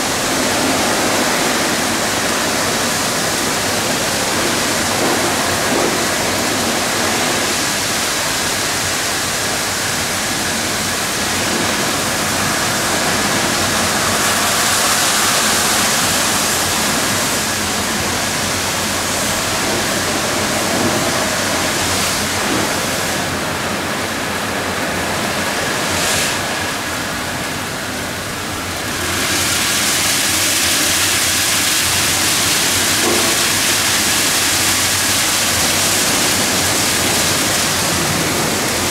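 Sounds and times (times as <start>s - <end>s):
water spraying: 0.0s - 38.9s.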